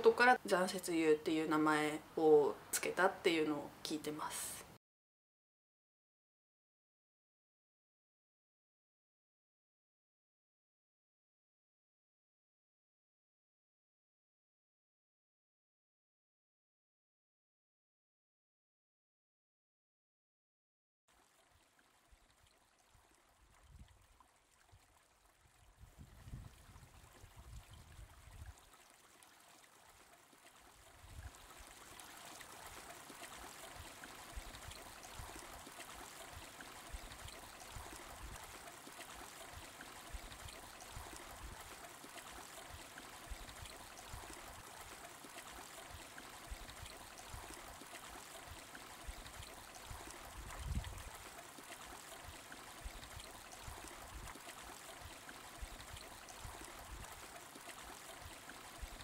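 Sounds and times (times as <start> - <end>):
stream running over rocks: 21.1 - 59.0.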